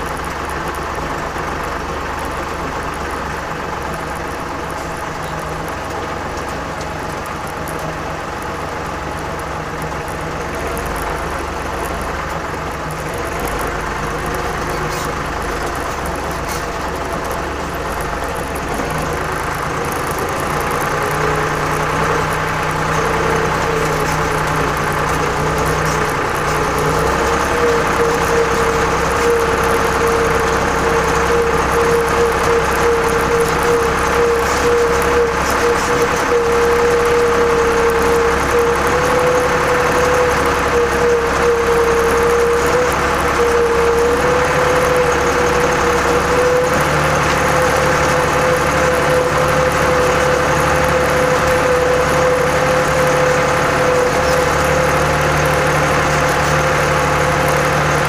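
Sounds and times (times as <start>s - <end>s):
tractor diesel engine under load: 0.0s - 58.0s
high whine: 12.7s - 58.0s.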